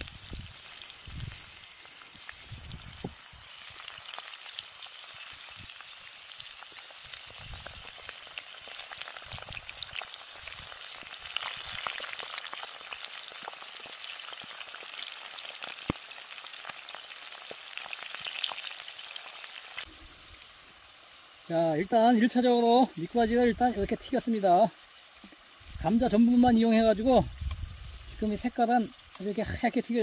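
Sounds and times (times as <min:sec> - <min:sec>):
fish deep-frying in hot oil: 0:00.0 - 0:30.0.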